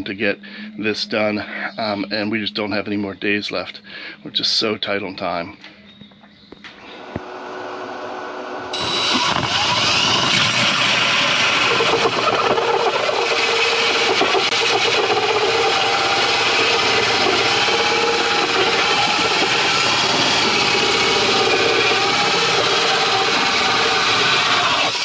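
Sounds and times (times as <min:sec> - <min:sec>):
drill hole saw cutting wood: 0:08.7 - 0:25.0.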